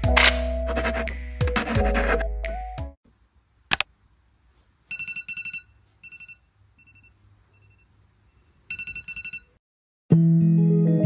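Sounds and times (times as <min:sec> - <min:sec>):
phone trilling ringtone: 0:04.9 - 0:07.8, 0:08.7 - 0:09.6.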